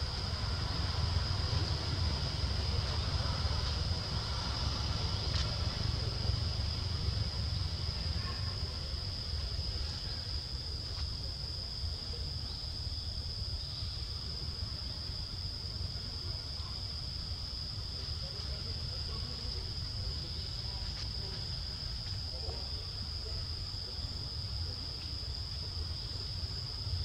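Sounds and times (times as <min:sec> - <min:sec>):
low rumble: 0:00.0 - 0:09.5
insect chorus drone: 0:00.0 - 0:27.0.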